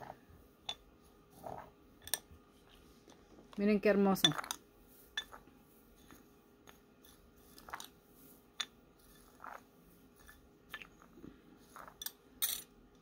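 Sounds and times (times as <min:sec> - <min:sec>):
spoon scraping glitter in bowl: 0:04.2 - 0:12.2.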